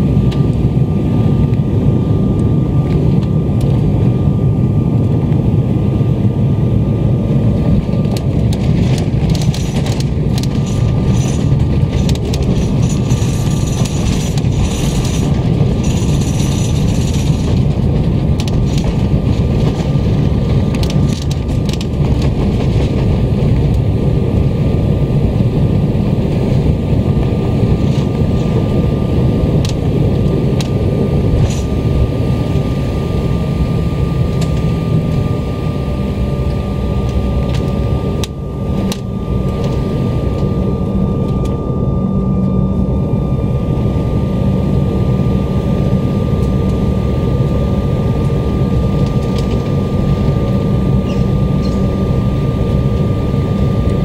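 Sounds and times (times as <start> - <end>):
airliner engine and wheel rumble: 0.0 - 54.0
rattles and knocks: 8.4 - 23.1.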